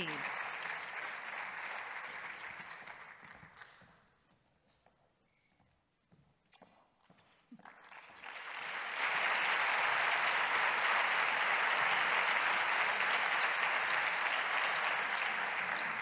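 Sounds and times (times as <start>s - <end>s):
audience applauding: 0.0s - 3.9s, 7.6s - 16.0s.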